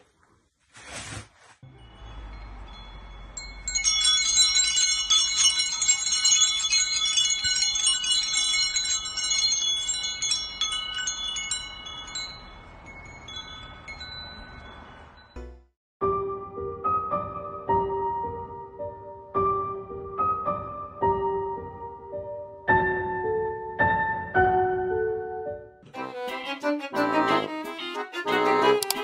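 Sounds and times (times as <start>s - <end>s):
metal wind chime ringing: 1.7s - 15.4s.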